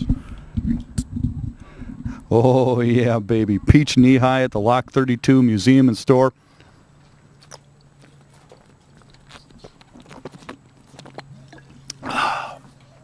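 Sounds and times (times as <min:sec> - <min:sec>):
rush of breath: 0:01.5 - 0:02.3, 0:12.0 - 0:12.7
man gulping soda: 0:10.1 - 0:12.8.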